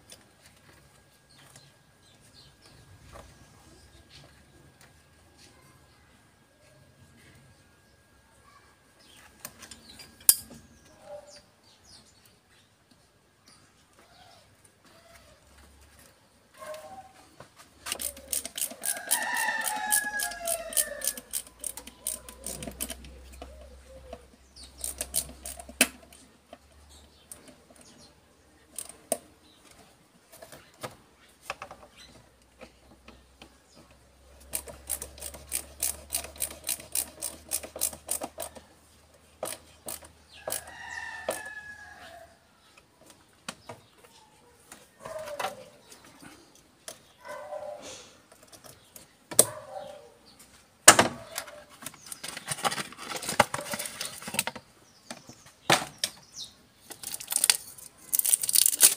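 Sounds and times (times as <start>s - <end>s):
rooster crowing: 18.7s - 21.4s, 40.4s - 42.4s.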